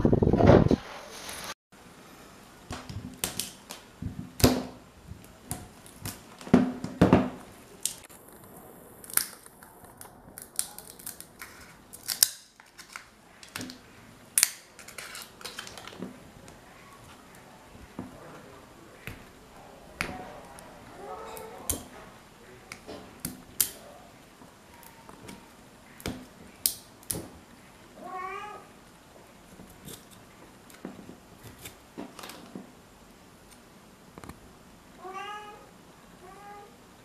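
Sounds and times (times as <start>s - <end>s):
sharp wire snaps: 22.7s - 23.8s, 26.0s - 27.3s.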